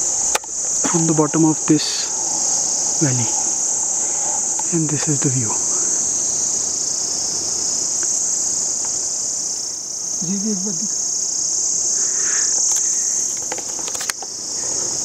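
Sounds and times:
insect chorus: 0.0 - 15.0
person's voice: 0.8 - 2.1, 3.0 - 3.4, 4.6 - 6.0, 10.2 - 11.0.

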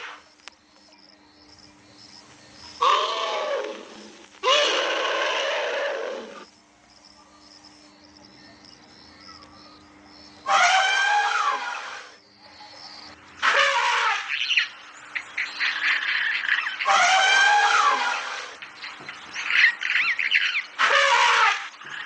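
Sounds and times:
elephant trumpeting: 2.8 - 6.4, 10.4 - 12.2, 13.4 - 14.6, 15.9 - 18.6, 20.8 - 22.0.

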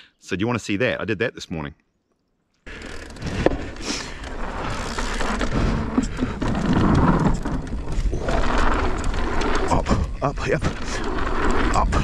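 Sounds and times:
bike tyres rolling on dirt: 2.6 - 12.0.

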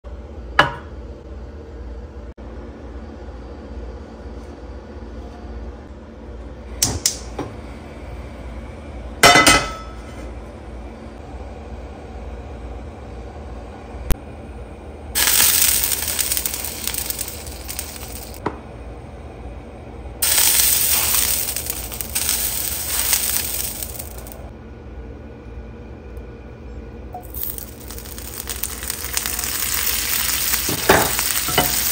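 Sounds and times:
gas hissing: 15.2 - 18.4, 20.2 - 24.5, 27.2 - 31.9
frying pan knocking on stove grate: 30.6 - 31.9.

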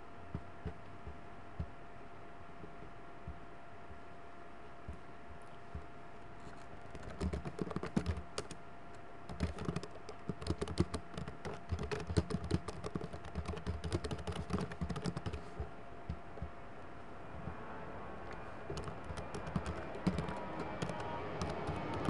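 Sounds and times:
faint steady hum: 0.0 - 22.0
keyboard typing: 6.9 - 8.6, 9.3 - 16.5, 18.3 - 22.0.

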